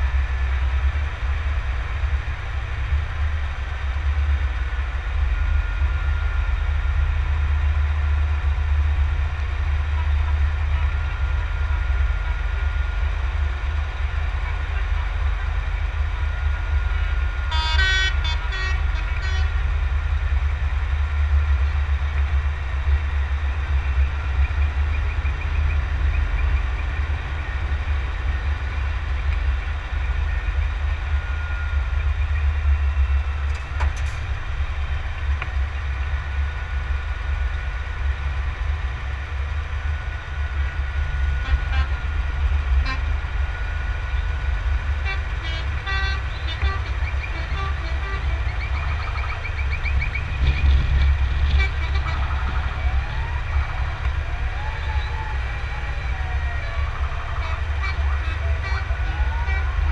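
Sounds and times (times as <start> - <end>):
truck engine rumble: 0.0 - 59.9
truck horns tooting: 16.8 - 20.0, 40.6 - 59.9
wind buffeting microphone: 48.5 - 57.9.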